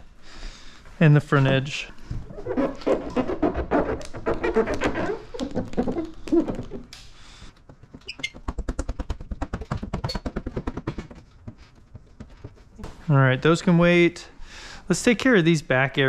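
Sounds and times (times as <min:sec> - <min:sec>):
squeaky ticks of film squeegee: 0:02.4 - 0:07.0, 0:07.6 - 0:09.3, 0:09.9 - 0:10.4.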